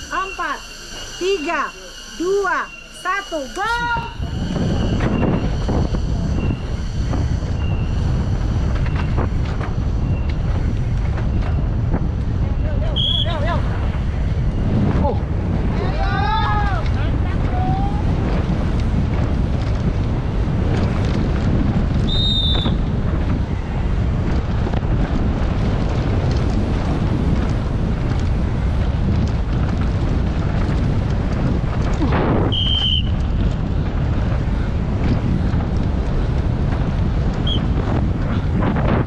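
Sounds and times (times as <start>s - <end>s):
short high squeals: 0.0s - 9.2s
wind rushing over microphone: 0.0s - 39.0s.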